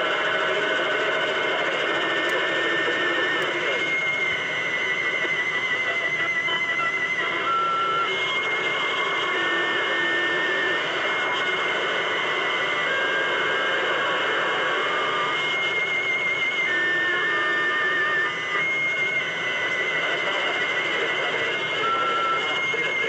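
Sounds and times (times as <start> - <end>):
radio static hiss: 0.2 - 15.4, 16.6 - 23.0
faint wavering whistles: 2.0 - 11.4, 14.4 - 23.0.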